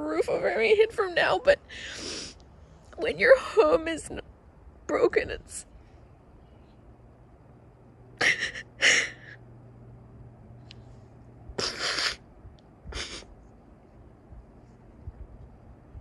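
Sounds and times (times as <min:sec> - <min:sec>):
woman sobbing and sniffing: 0:01.6 - 0:02.4, 0:08.2 - 0:09.4, 0:11.6 - 0:12.2, 0:12.9 - 0:13.4.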